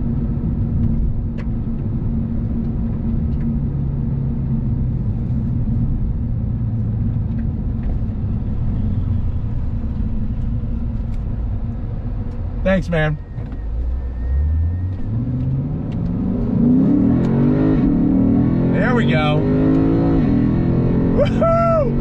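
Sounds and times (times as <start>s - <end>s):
car engine running: 0.0s - 22.0s
road noise: 0.0s - 22.0s.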